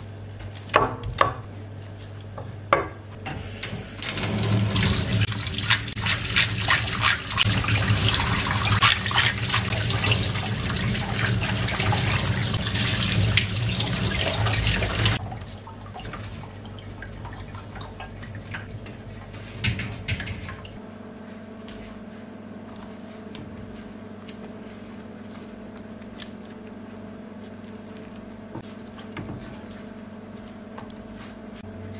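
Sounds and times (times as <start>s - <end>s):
tap water running and splashing: 3.6s - 19.0s.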